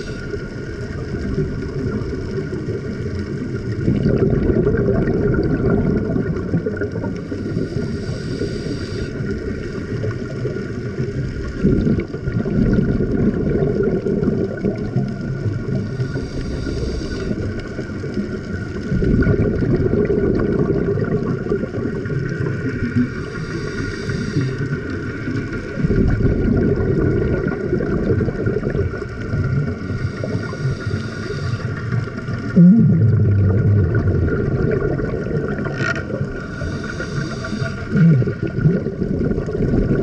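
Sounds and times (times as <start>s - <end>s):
bubbling exhaled air: 0.0s - 40.0s
regulator hissing inhalations: 7.3s - 9.3s, 15.9s - 17.4s, 23.1s - 24.7s, 29.8s - 32.1s, 36.4s - 38.0s.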